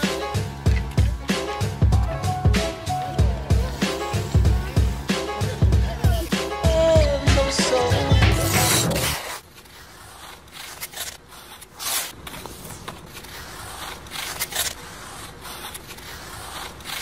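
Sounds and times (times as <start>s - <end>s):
skate blades scraping ice: 0.0s - 1.8s, 2.6s - 5.6s, 6.2s - 17.0s
background music: 0.0s - 9.2s.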